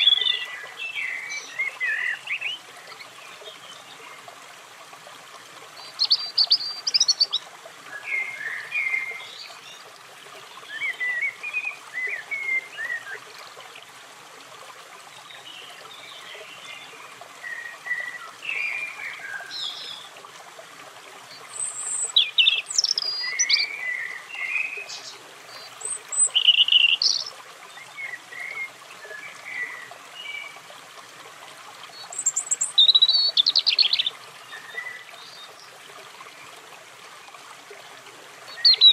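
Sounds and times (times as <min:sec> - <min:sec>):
robin singing: 0:00.0 - 0:02.6, 0:05.8 - 0:09.8, 0:21.4 - 0:30.6, 0:31.9 - 0:35.7, 0:38.5 - 0:38.9.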